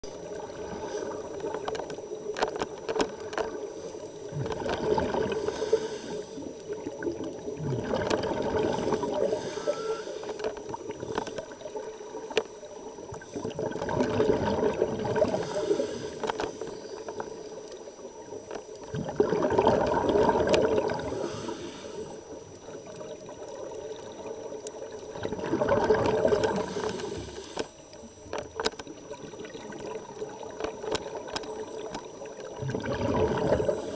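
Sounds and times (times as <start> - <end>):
underwater exhaled bubbles: 0.0 - 33.9
regulator inhalation hiss: 0.7 - 1.5, 5.2 - 6.6, 8.7 - 10.6, 15.3 - 17.6, 20.9 - 22.4, 26.5 - 28.2.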